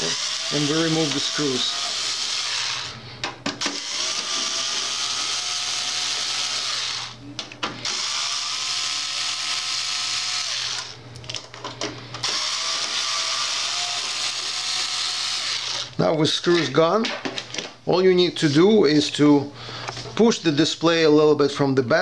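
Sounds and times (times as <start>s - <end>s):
cordless screwdriver whining: 0.0s - 3.0s, 3.6s - 7.2s, 7.8s - 11.0s, 12.2s - 15.9s.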